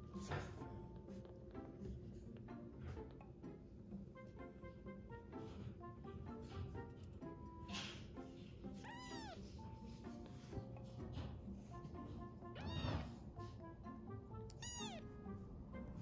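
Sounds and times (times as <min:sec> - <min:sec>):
soft background music: 0:00.0 - 0:16.0
kitten mewing: 0:08.8 - 0:09.6, 0:12.5 - 0:13.2, 0:14.4 - 0:15.2.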